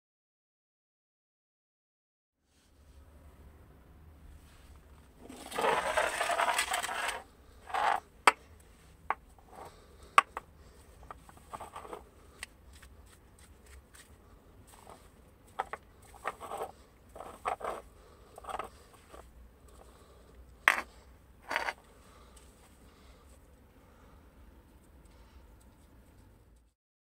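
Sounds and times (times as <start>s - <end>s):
can clicking and scraping: 5.2s - 8.4s, 15.6s - 17.8s.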